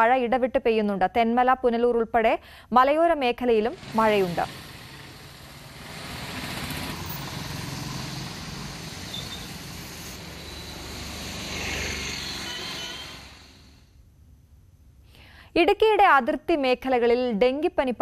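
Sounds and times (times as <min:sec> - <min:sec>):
rain hissing: 0:03.8 - 0:13.9
tyres on wet road: 0:03.8 - 0:13.9
passing vehicle engines: 0:03.8 - 0:14.0.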